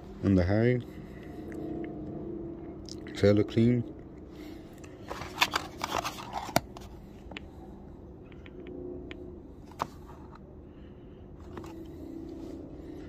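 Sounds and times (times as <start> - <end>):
faint steady hum: 0.0 - 13.0
cardboard box rustling: 5.1 - 6.9.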